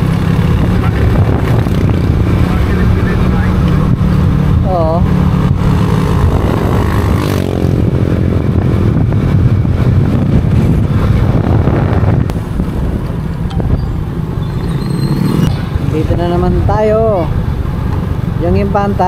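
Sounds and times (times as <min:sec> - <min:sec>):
motorcycle engine running: 0:00.0 - 0:18.8
wind and road noise: 0:00.0 - 0:19.0.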